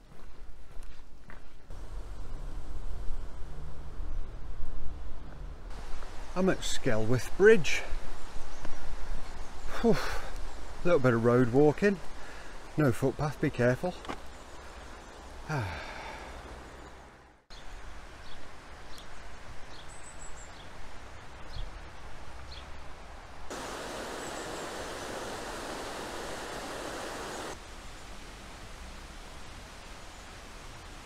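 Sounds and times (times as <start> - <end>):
steady rushing noise: 23.5 - 27.8.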